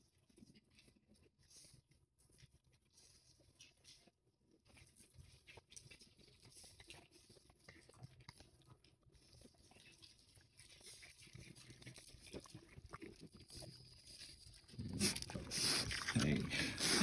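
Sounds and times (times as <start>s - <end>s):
pig chewing with soft crunching: 0.0s - 17.0s.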